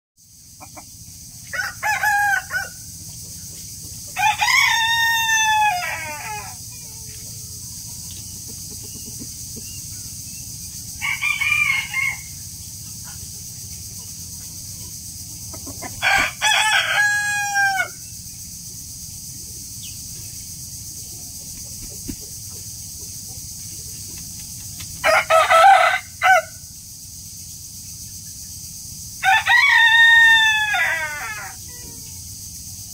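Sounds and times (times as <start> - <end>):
rooster crowing: 1.4 - 3.0, 4.1 - 6.7, 10.8 - 12.5, 15.8 - 18.2, 25.0 - 26.7, 29.2 - 31.7.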